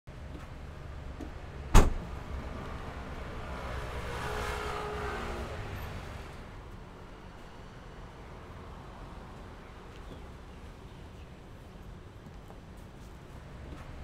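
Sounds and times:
tailgate latch clunk: 1.2 - 2.1.

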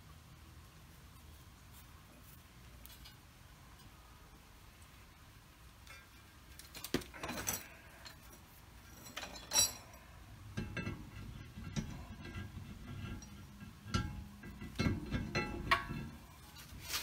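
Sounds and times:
metal clinks and scrapes: 1.7 - 4.0, 5.8 - 17.0
metal knocks: 9.1 - 16.6.

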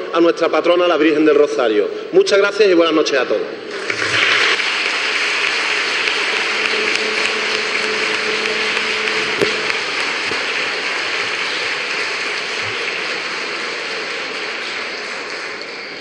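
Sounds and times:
audience applauding: 3.7 - 16.0.

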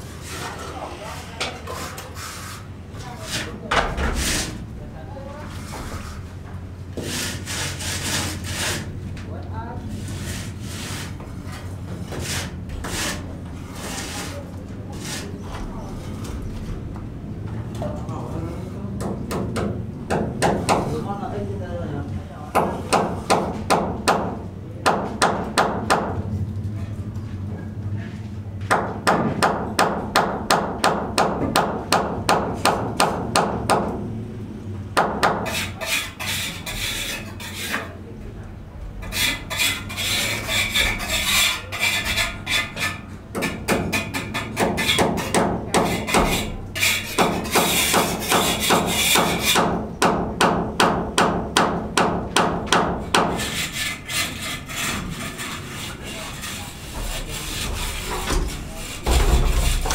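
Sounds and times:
rasping scraping: 0.0 - 4.6, 5.4 - 6.4, 7.0 - 9.0, 9.9 - 16.4, 35.3 - 38.0, 39.0 - 49.8, 52.7 - 59.9
hand hammering: 19.0 - 21.0, 22.5 - 26.2, 28.7 - 34.0, 35.0 - 36.4, 40.5 - 54.9.

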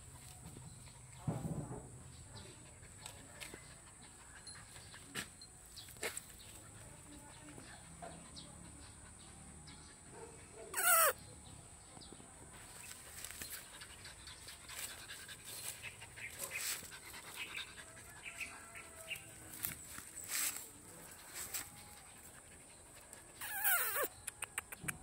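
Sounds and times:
dog yelp: 10.7 - 11.2, 23.4 - 24.1
dogs rustling in dry leaves: 12.6 - 22.2
dogs snuffling: 12.6 - 24.8.

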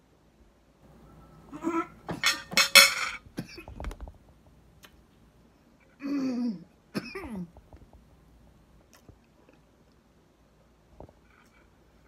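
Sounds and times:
person coughing: 6.0 - 7.5.

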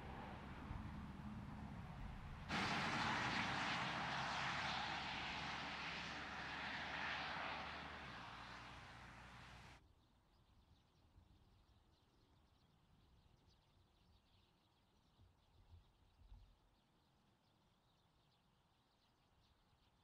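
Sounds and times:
car driving by: 0.0 - 9.8.

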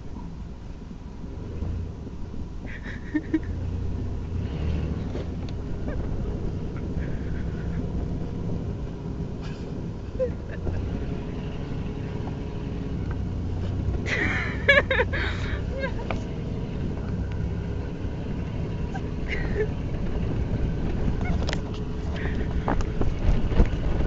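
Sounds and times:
vehicle engine rumbling: 0.0 - 24.0
wind on microphone: 19.8 - 24.0.

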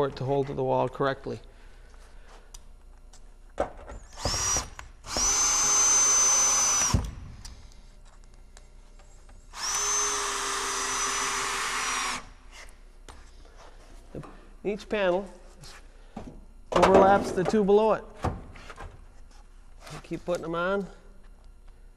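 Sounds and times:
cordless drill driving screws: 4.1 - 7.1, 9.6 - 12.3.

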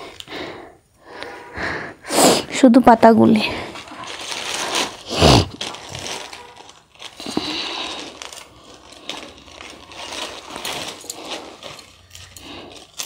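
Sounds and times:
stalks crackling and snapping: 3.8 - 13.0.

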